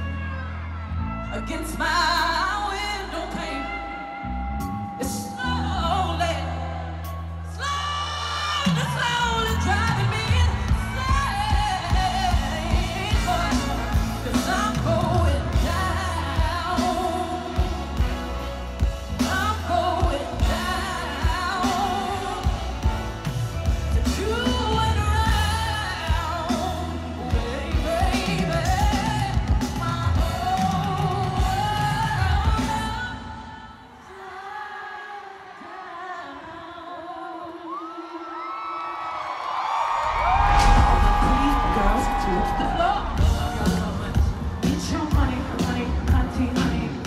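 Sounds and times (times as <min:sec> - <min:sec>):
woman singing into microphone: 0:00.0 - 0:39.2, 0:40.1 - 0:47.0
deep bass line: 0:09.3 - 0:30.6, 0:40.1 - 0:47.0.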